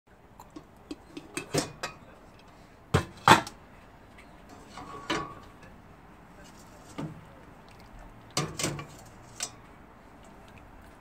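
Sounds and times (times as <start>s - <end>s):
cookware clattering: 0.9s - 2.0s, 4.7s - 5.4s.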